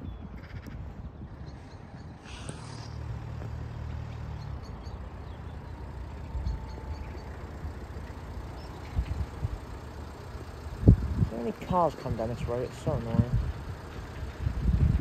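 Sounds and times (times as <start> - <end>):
car passing by: 2.2 - 6.3.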